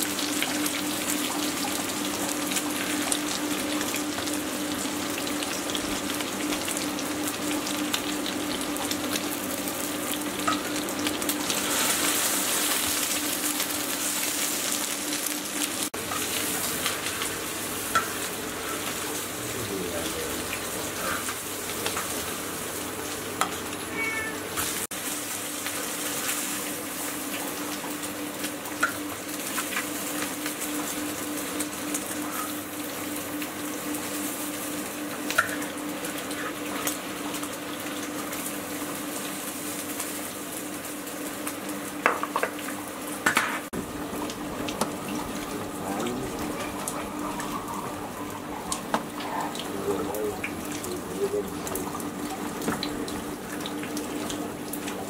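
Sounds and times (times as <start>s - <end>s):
food sizzling in a wok: 0.0s - 55.0s.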